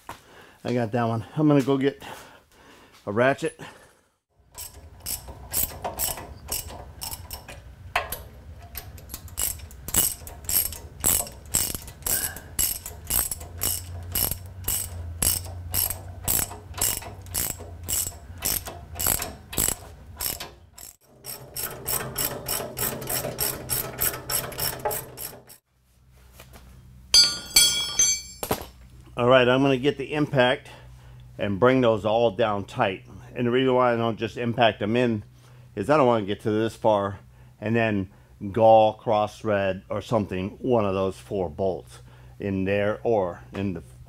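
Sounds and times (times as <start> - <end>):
ratchet wrench clicking: 4.5 - 7.6, 8.9 - 25.6.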